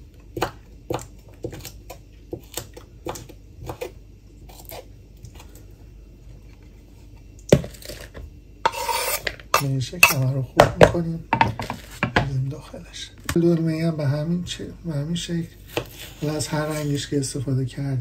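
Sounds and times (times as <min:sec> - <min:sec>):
knife chopping on cutting board: 0:00.4 - 0:03.9
food scraped off board: 0:07.8 - 0:09.4.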